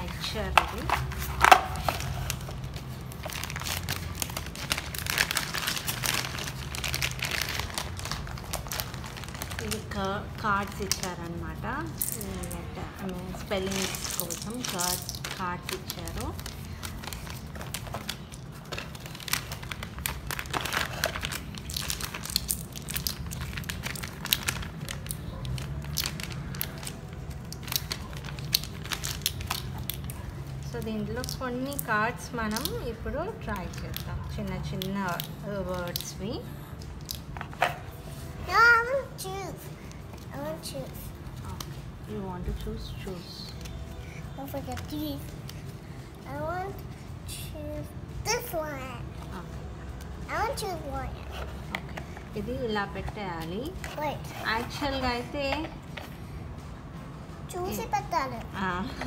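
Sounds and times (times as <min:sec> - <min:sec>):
packaging rustling and crinkling: 0:00.0 - 0:38.4.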